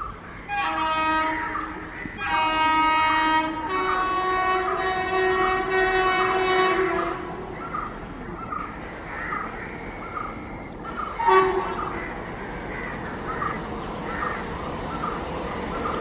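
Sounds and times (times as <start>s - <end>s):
locomotive horn: 0.5s - 7.4s, 11.2s - 12.1s.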